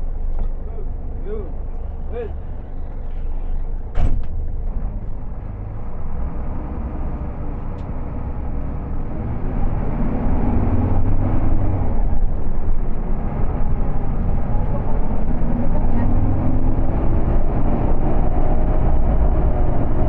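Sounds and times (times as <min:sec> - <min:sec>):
bus engine and cabin rumble: 0:00.0 - 0:20.0.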